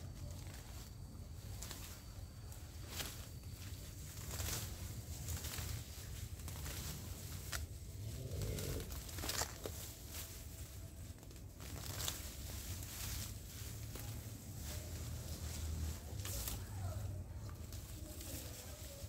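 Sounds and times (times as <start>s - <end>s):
leaves and stems rustling: 0.0s - 19.0s
sharp crackles and snaps: 4.0s - 10.2s.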